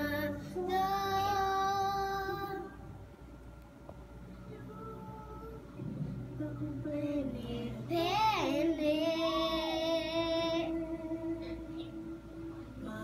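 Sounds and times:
girl singing: 0.0s - 2.8s, 4.5s - 12.0s.

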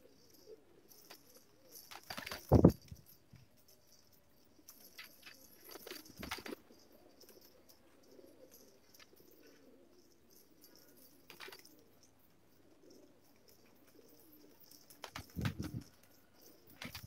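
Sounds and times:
pigeons cooing: 4.8s - 17.0s.

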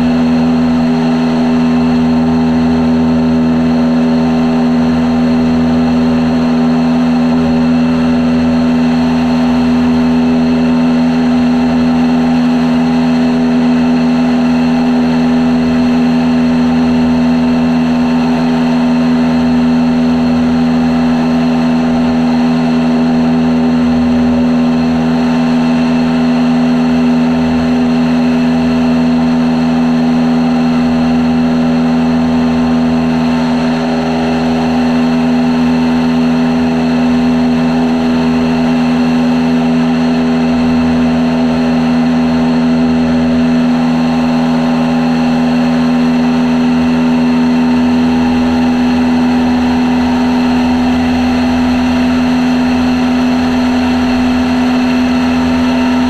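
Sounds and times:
propeller aircraft engine droning: 0.0s - 56.0s.

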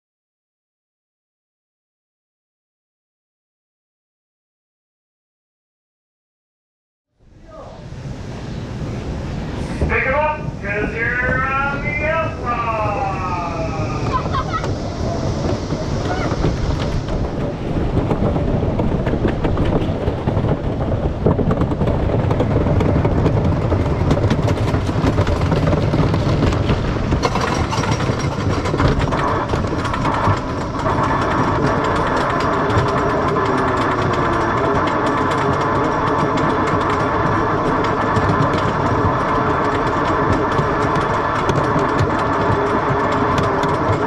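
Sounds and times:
roller coaster clattering rumble: 7.2s - 44.0s
lift chain whine: 9.5s - 44.0s
ratchet clacking rapidly: 21.5s - 44.0s.

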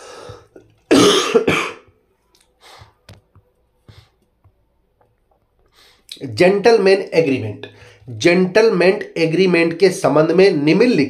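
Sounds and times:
breath: 0.0s - 0.6s, 2.6s - 3.1s, 3.8s - 4.2s, 5.6s - 6.1s, 7.7s - 8.1s
person coughing: 0.9s - 1.9s.

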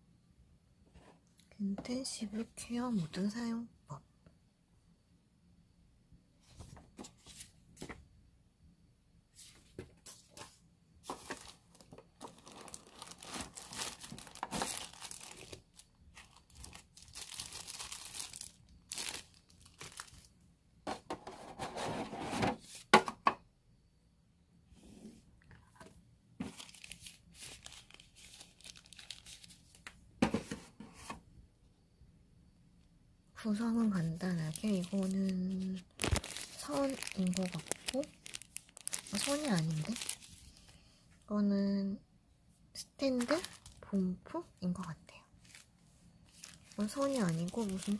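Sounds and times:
packaging rustling and tearing: 11.1s - 20.3s, 26.4s - 29.8s, 34.5s - 40.8s, 43.2s - 43.8s, 45.4s - 45.7s, 46.3s - 47.9s.

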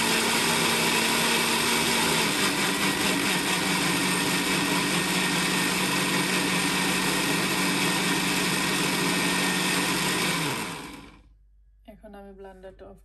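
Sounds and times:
blender running: 0.0s - 11.2s.

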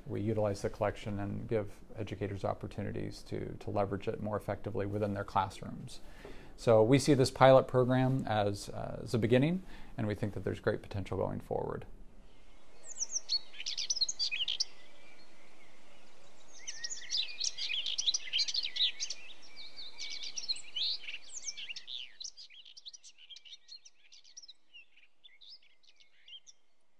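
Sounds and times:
songbirds chirping and singing: 12.3s - 26.8s.

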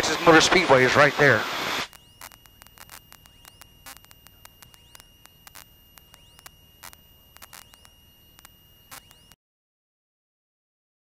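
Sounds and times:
high-pitched whine: 0.0s - 9.4s
static clicks and crackles: 0.0s - 9.4s
low hum: 1.4s - 9.4s.

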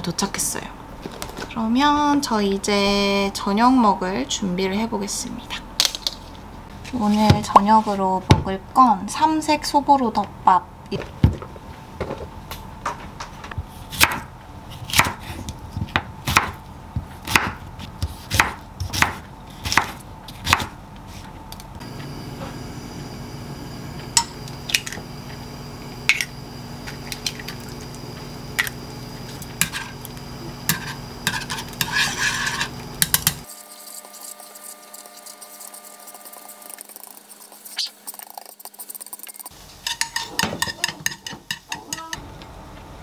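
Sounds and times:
knife chopping on wooden board: 14.9s - 15.2s, 17.2s - 20.7s
chopsticks stirring in pan: 30.7s - 42.1s
pan and utensils clinking: 39.8s - 42.1s.

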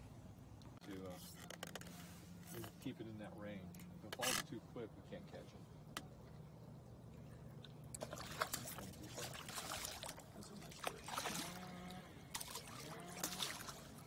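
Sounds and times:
fish splashing at water surface: 7.1s - 14.0s.

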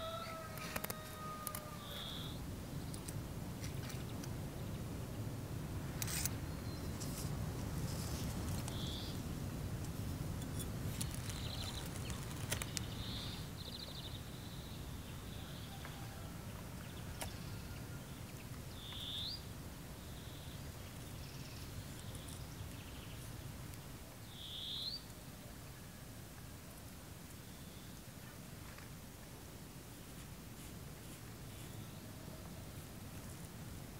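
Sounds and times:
small birds calling: 0.0s - 3.1s, 8.6s - 9.2s, 16.8s - 23.4s, 24.2s - 25.1s
tape and paper rustling: 10.9s - 12.9s.

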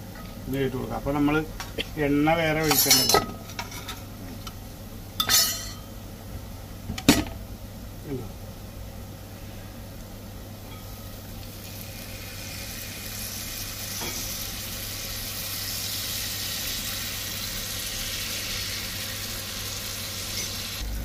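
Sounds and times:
fat sizzling in a pan: 10.6s - 21.0s.

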